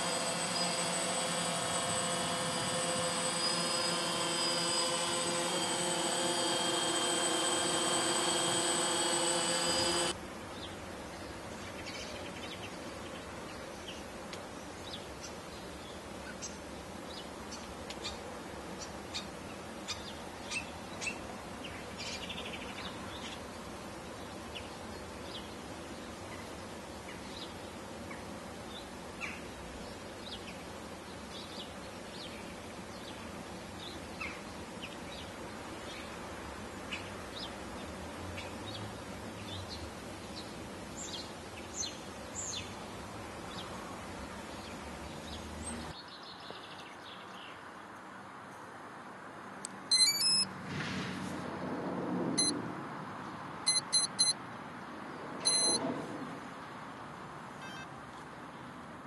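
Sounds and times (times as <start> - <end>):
steady background hiss: 0.0 - 50.5
birds chirping: 49.9 - 50.4.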